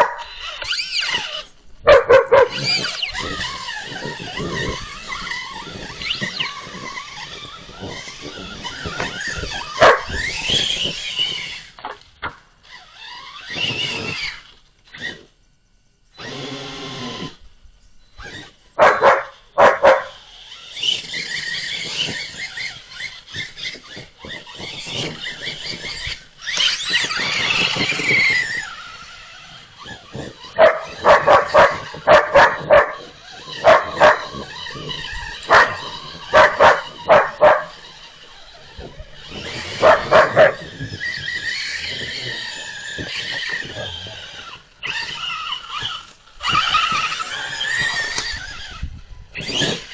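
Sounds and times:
dogs barking: 0.0 - 0.4, 1.0 - 6.7, 7.9 - 10.4, 18.8 - 20.2, 30.4 - 38.0, 39.2 - 45.0
toy truck electric motor whine: 0.0 - 49.9.

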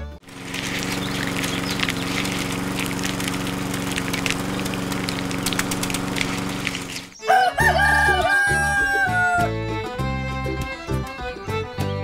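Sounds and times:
beans crushed in grinder: 0.2 - 7.2
small electric motor running: 0.2 - 7.2.

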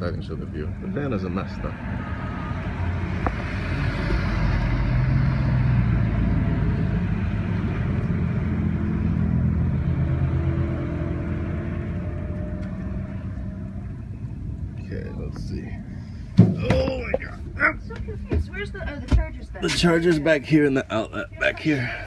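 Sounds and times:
car driving past: 0.5 - 14.4.

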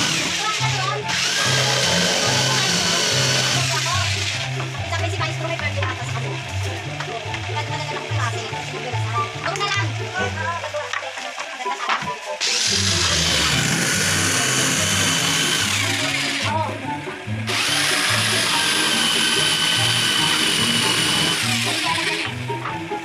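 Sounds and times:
power tool motor whine: 0.0 - 4.5, 12.4 - 16.5, 17.5 - 22.4
background music with bass: 0.0 - 23.0.

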